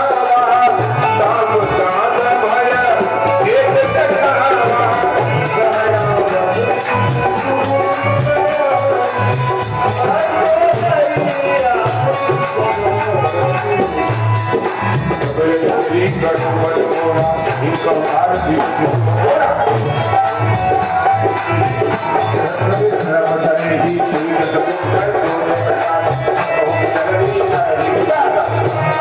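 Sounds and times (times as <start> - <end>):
drum beat: 0.0 - 29.0
jingling percussion: 0.0 - 29.0.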